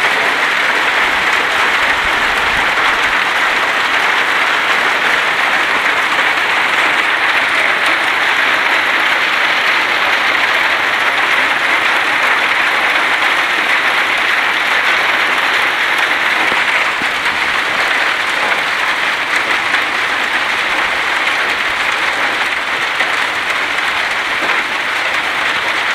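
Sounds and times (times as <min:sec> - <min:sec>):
heavy hail and rain falling: 0:00.0 - 0:25.9.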